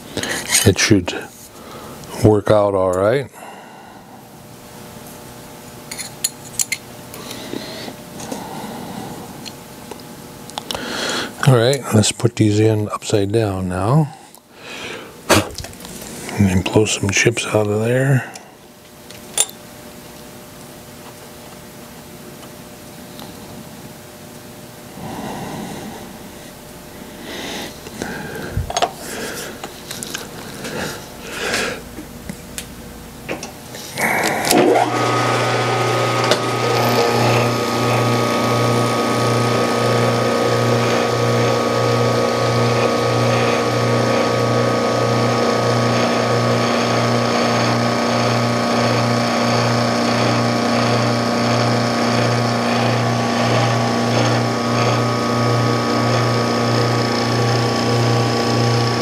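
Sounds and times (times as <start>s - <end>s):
milling machine motor humming: 24.8s - 59.0s.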